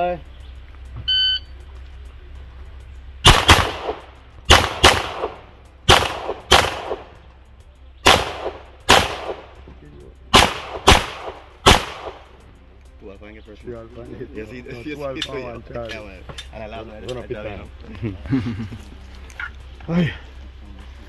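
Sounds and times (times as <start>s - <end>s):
handgun shots with echo: 3.2s - 7.1s, 8.0s - 9.6s, 10.3s - 12.3s.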